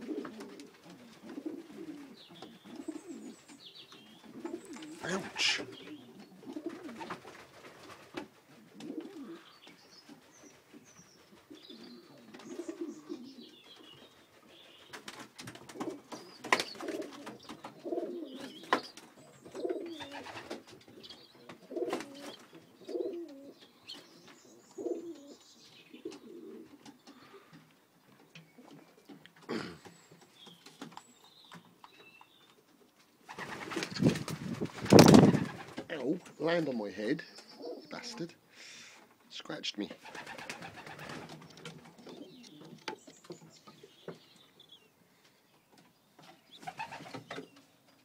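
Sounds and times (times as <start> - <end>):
pigeons cooing: 0.0 - 27.6, 33.2 - 36.3, 37.3 - 38.3, 40.0 - 44.8, 46.3 - 47.7.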